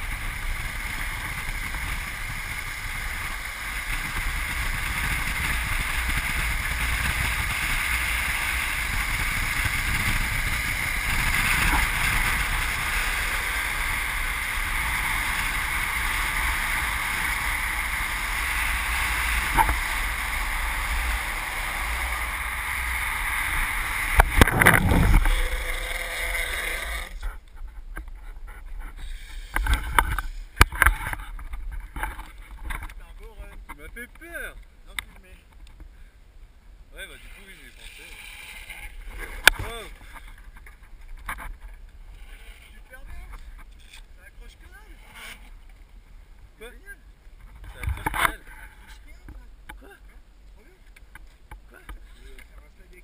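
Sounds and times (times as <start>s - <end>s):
wind rushing over microphone: 0.0s - 33.0s
longboard wheels rolling on asphalt: 0.0s - 35.9s, 36.8s - 53.0s.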